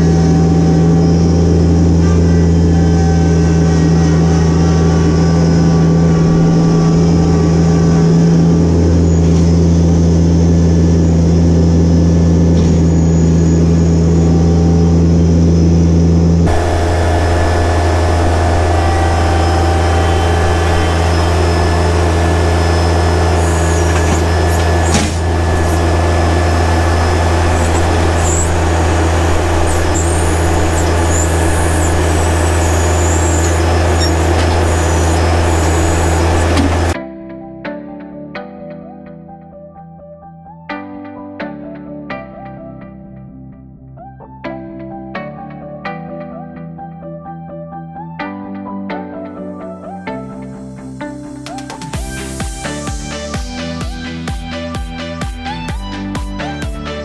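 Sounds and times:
diesel tractor engine running: 0:00.0 - 0:37.0
backhoe digging dirt: 0:16.4 - 0:37.0
metallic clunk: 0:23.8 - 0:25.9.

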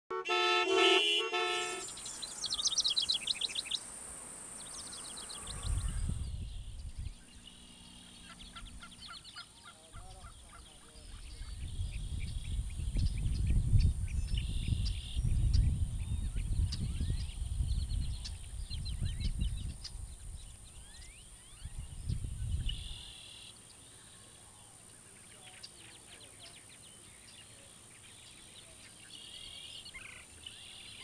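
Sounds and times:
chord of held tones: 0:00.1 - 0:02.7
birds trilling and chirping: 0:00.3 - 0:31.0
wind rumble on microphone: 0:05.3 - 0:07.5, 0:10.0 - 0:23.0.

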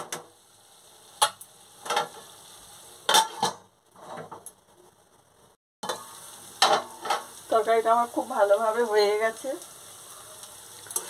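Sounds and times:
faint sizzle: 0:00.0 - 0:11.0
metal spatula scraping pan: 0:03.1 - 0:04.4.

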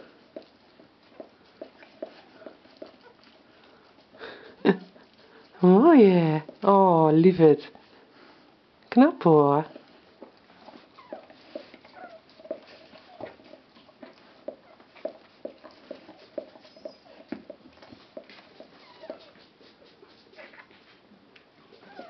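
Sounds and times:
puppy squeaking and whimpering: 0:10.9 - 0:13.5, 0:16.6 - 0:17.3, 0:18.7 - 0:19.5, 0:20.4 - 0:20.8, 0:21.7 - 0:22.0.

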